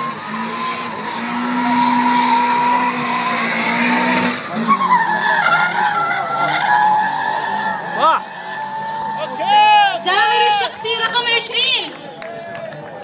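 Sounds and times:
car engine revving high: 0:00.0 - 0:09.4
tyre squeal: 0:04.5 - 0:09.5.

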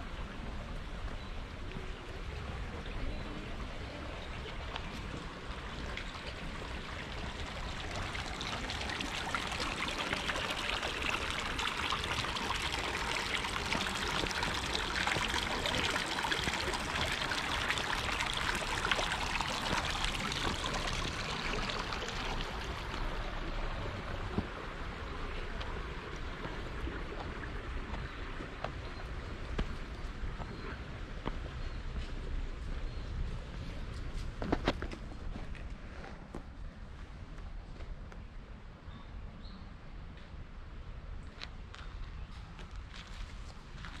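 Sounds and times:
water rushing: 0:03.7 - 0:29.4.

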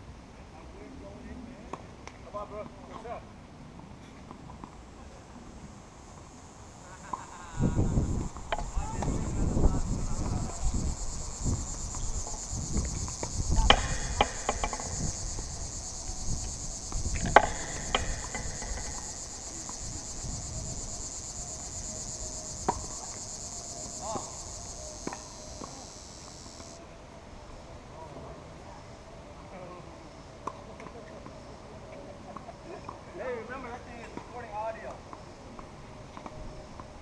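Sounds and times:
insects buzzing: 0:04.6 - 0:27.4
tennis ball struck and bouncing: 0:13.2 - 0:15.0, 0:17.2 - 0:19.8.

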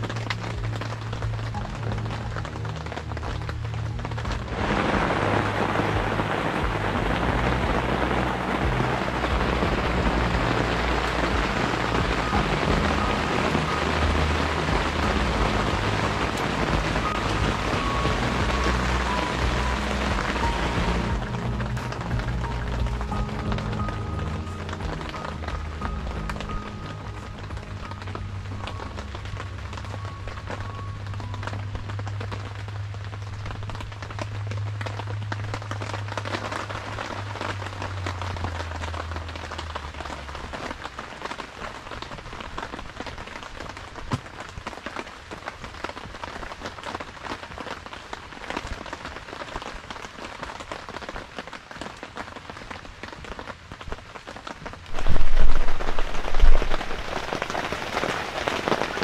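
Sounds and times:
low drone: 0:00.0 - 0:42.7
heavy rain patter: 0:00.0 - 0:59.0
loud low thumps: 0:03.9 - 0:28.8.

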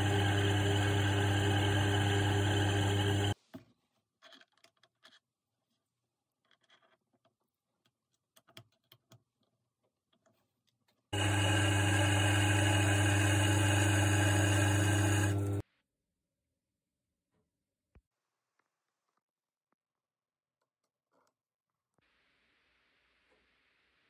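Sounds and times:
lathe motor humming: 0:00.0 - 0:03.4, 0:11.2 - 0:15.6
faint metal clicks and taps: 0:06.4 - 0:11.0.

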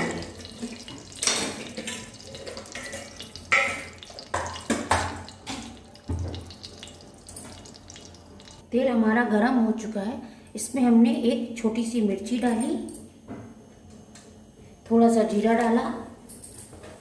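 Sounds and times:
hot oil sizzling: 0:00.0 - 0:08.6
oil spitting and popping: 0:00.0 - 0:08.6.

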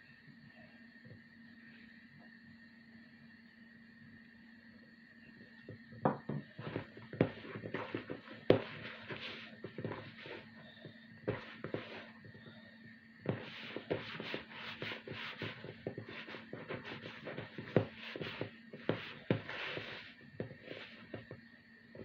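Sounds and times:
faint steady hum: 0:00.0 - 0:22.0
dough squelching in bowl: 0:06.6 - 0:12.6, 0:13.2 - 0:22.0.

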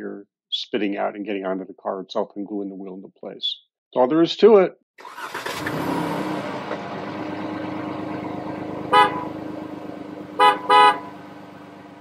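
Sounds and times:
car engine idling: 0:06.2 - 0:12.0
car horn honking: 0:08.8 - 0:09.6, 0:10.3 - 0:11.3.

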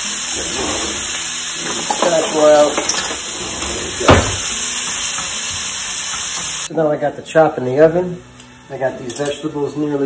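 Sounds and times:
vegetables sizzling in hot oil: 0:00.0 - 0:03.4, 0:04.0 - 0:06.7.

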